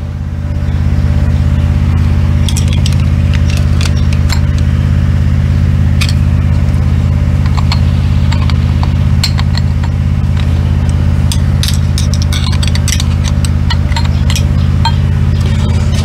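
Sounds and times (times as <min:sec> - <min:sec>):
low mechanical motor drone: 0:00.0 - 0:16.0
light metallic clicks and clinks: 0:11.3 - 0:15.0.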